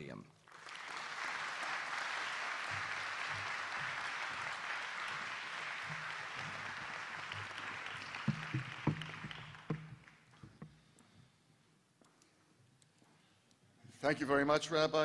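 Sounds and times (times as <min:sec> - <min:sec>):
audience applauding: 0:00.4 - 0:10.4
low thumps: 0:08.2 - 0:10.7.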